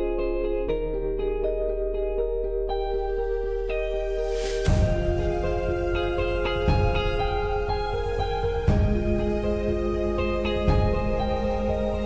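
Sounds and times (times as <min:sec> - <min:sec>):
gentle melody of held notes: 0:00.0 - 0:12.0
soft low beat: 0:04.7 - 0:12.0.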